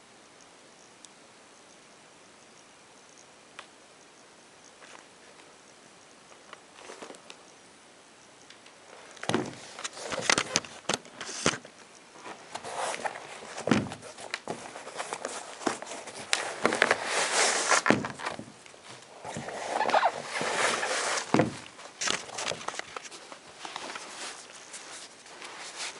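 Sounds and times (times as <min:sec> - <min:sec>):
shoe and laces rustling: 0:08.9 - 0:25.9.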